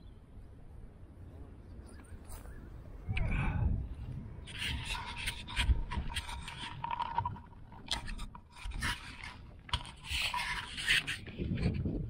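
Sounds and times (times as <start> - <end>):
fingers rubbing camera housing: 4.4 - 11.8.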